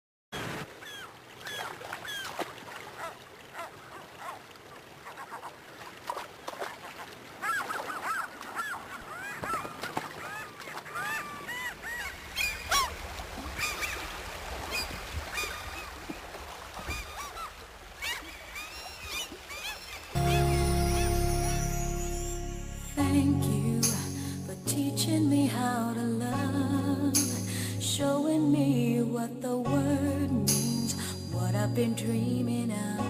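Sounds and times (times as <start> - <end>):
birds honking: 16.9 - 22.4.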